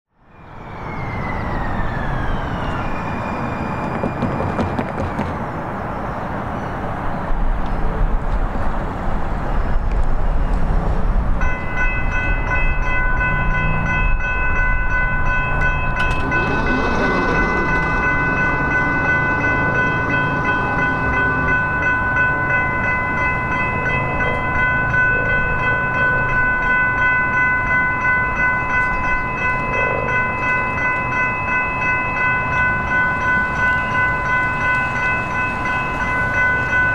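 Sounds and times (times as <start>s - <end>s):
passing vehicle: 0.2s - 11.5s, 12.2s - 26.7s
street noise: 0.2s - 36.9s
railroad crossing bells ringing: 9.2s - 36.9s
low rumble: 15.1s - 23.7s.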